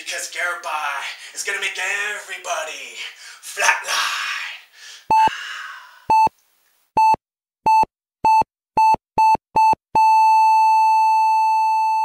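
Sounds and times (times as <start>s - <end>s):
heart monitor beeps: 6.1s - 6.3s, 7.0s - 12.0s
heart monitor flatline tone: 7.0s - 12.0s.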